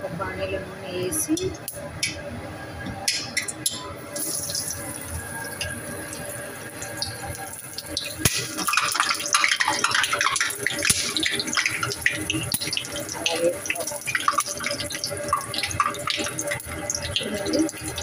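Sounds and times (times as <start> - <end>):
food sizzling in hot oil: 4.0 - 18.0.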